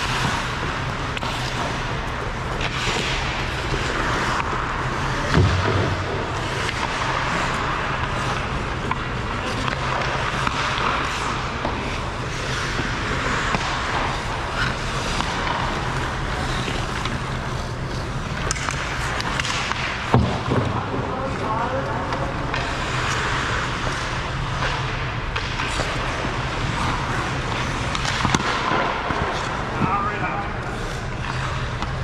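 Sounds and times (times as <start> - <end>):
hockey sticks and puck clacking: 0.0 - 32.0
skates scraping ice: 0.0 - 32.0
steady low hum: 0.0 - 32.0.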